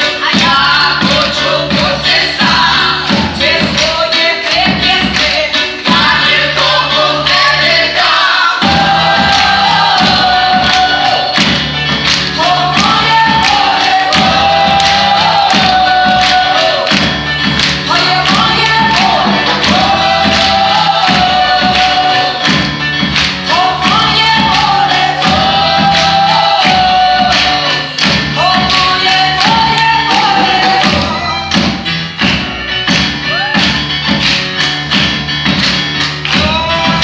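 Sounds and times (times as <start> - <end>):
steady drum beat: 0.0 - 7.9, 8.6 - 37.0
women singing: 0.0 - 11.7, 12.3 - 17.0, 17.8 - 22.6, 23.5 - 31.2.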